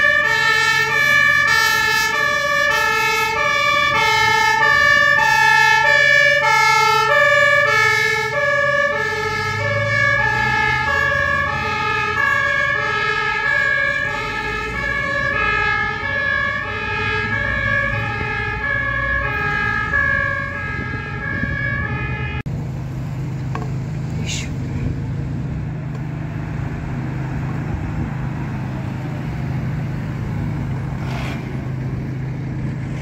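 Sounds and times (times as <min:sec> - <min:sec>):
two-tone fire engine siren: 0:00.0 - 0:22.5
traffic noise: 0:00.0 - 0:33.0
truck engine rumble: 0:00.0 - 0:33.0.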